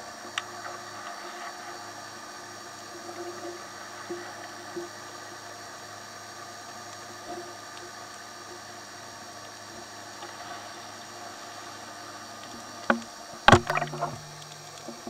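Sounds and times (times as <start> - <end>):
faint steady hum: 0.0 - 15.0
underwater hiss: 0.0 - 15.0
bubbling: 12.9 - 15.0
divers splashing into water: 13.5 - 14.2.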